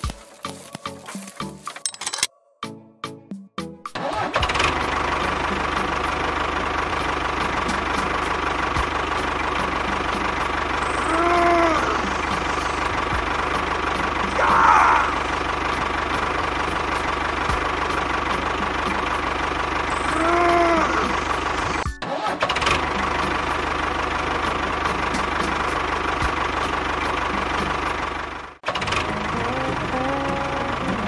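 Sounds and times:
small motor running: 10.8 - 13.4, 19.9 - 21.8.

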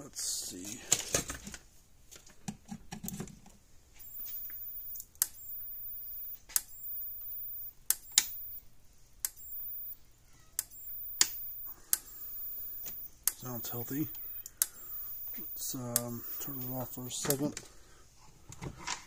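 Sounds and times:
faint high-pitched whine: 3.9 - 18.0
fence energizer snapping: 7.9 - 8.6
low hum: 10.6 - 17.0.

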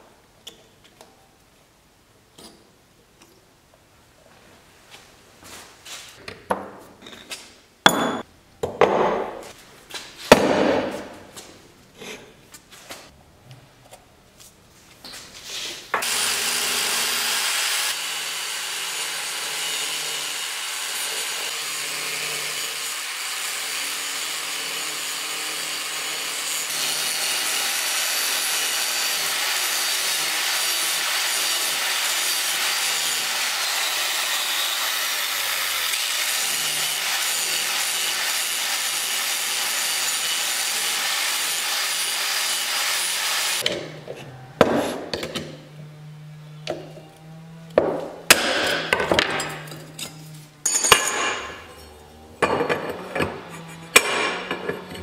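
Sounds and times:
angle grinder grinding steel: 16.0 - 43.7, 45.6 - 55.0.

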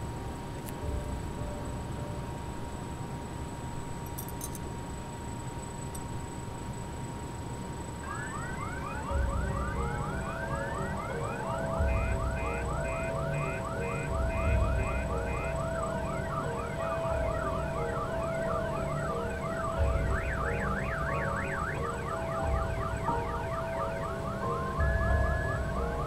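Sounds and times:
steady low rumble: 0.0 - 3.1
siren-like electronic whoops: 8.0 - 26.0.

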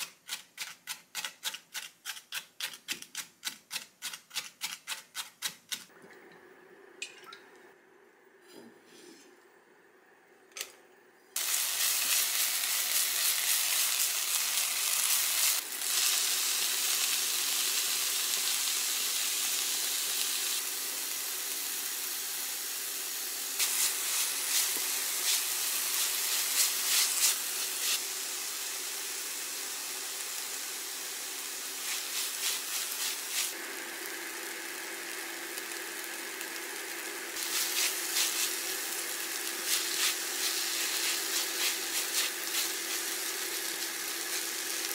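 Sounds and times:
food sizzling in frying pan: 11.4 - 44.9.

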